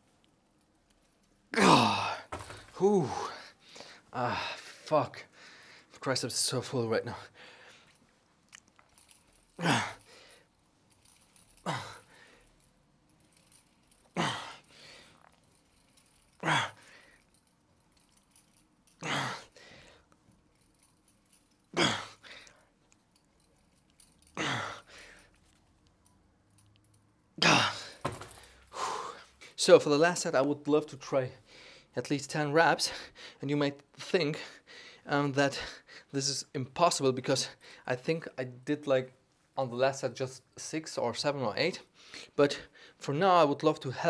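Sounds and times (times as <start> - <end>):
quiet breathing: 2.2 - 6.0, 7.1 - 8.2, 8.9 - 25.6, 31.4 - 32.0, 32.8 - 33.4, 34.4 - 36.2, 37.5 - 37.9, 41.9 - 43.0.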